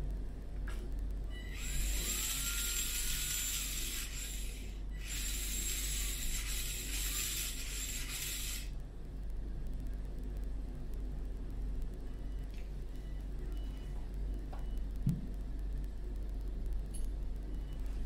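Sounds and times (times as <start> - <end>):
small electric motor whirring: 1.4 - 8.8.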